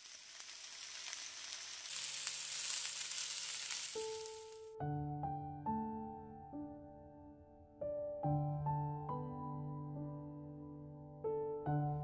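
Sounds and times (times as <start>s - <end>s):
meat sizzling on grill pan: 0.0s - 4.6s
piano music: 3.9s - 12.0s.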